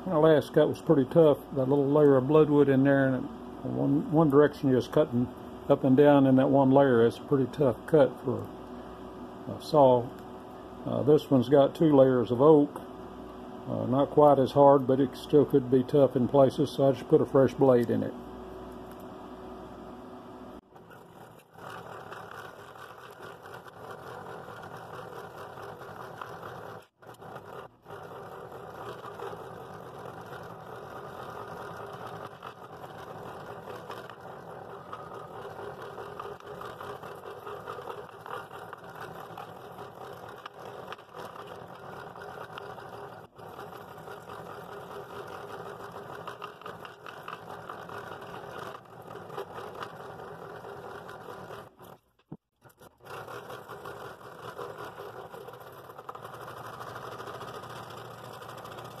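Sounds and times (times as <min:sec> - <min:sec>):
scroll saw cutting wood: 0:20.7 - 0:59.0.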